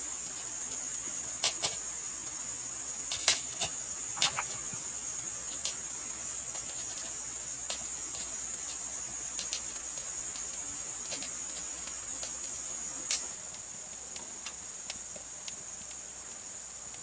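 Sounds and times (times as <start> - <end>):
high-pitched insect drone: 0.0 - 13.4
firewood crackling and popping: 0.0 - 17.0.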